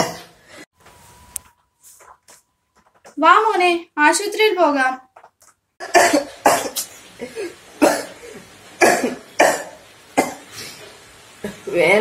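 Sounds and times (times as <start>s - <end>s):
boy coughing: 0.0s - 0.3s, 5.8s - 10.4s.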